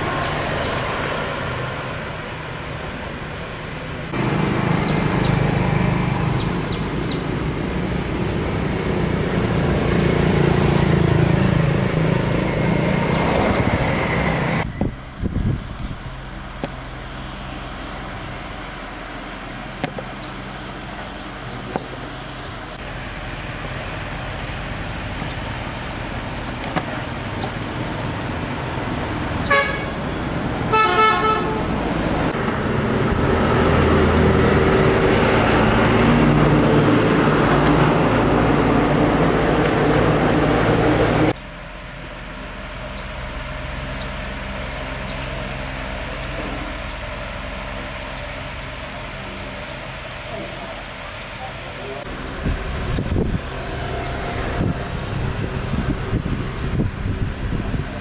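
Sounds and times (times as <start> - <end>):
road traffic: 0.0 - 58.0
motor vehicle passing close: 4.1 - 41.4, 42.6 - 58.0
vehicle horn beeps: 29.4 - 30.0, 30.7 - 31.8.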